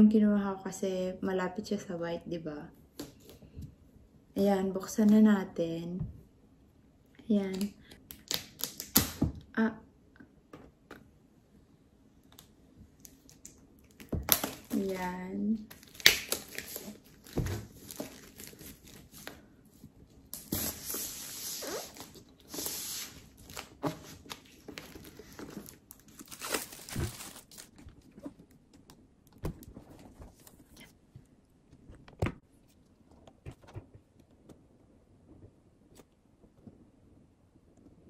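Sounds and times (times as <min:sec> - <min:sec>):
plastic wrap tearing and crinkling: 0:13.0 - 0:19.4, 0:20.2 - 0:28.6.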